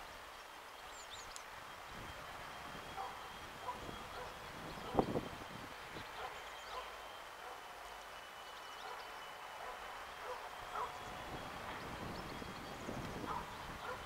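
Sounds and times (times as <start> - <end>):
distant small birds chirping: 0.0 - 14.0
faint high whine: 0.0 - 14.0
wind hissing: 0.0 - 14.0
wind rumble on microphone: 1.8 - 6.4, 10.7 - 14.0.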